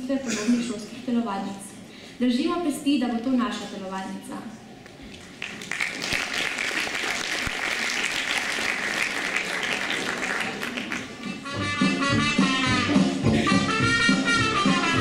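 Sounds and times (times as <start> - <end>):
audience applauding: 5.2 - 11.3
brass music: 11.2 - 15.0.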